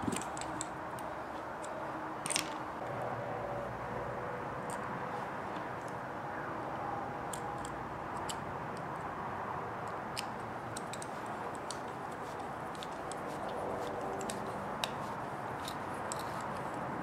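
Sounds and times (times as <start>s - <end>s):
plastic and metal parts handled: 2.2s - 2.6s.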